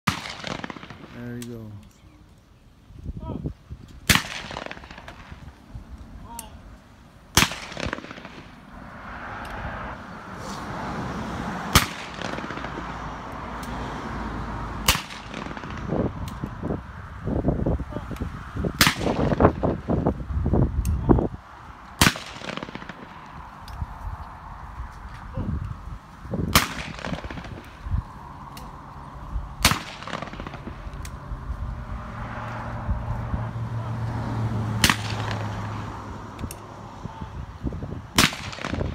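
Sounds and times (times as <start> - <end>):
shotgun shots with echo: 0.0 - 1.4, 4.0 - 5.4, 7.3 - 8.6, 11.7 - 13.0, 14.8 - 16.1, 18.8 - 19.7, 22.0 - 23.3, 26.5 - 27.8, 29.6 - 30.8, 34.8 - 35.6, 38.2 - 38.9.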